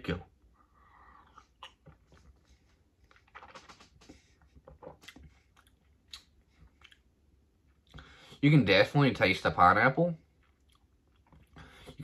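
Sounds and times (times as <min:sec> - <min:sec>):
man gulping drink: 0:01.2 - 0:07.1
mouth smacks and lip clicks: 0:01.2 - 0:08.0, 0:10.4 - 0:12.0.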